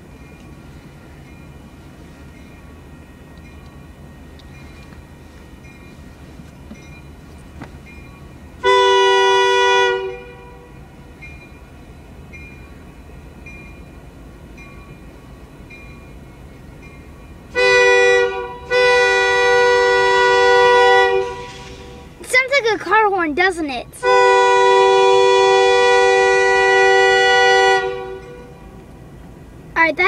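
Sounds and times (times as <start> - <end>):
passing train rumble: 0.0 - 30.0
locomotive air horn blasts: 8.6 - 11.0, 17.5 - 22.2, 24.0 - 28.8.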